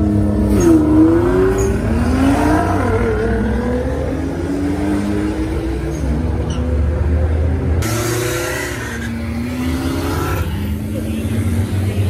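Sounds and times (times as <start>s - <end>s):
car engines revving: 0.0s - 12.0s.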